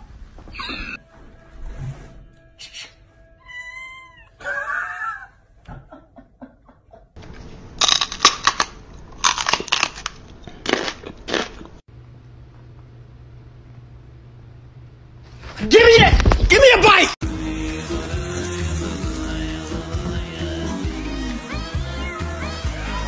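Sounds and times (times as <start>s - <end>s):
cat meowing: 3.4s - 5.2s.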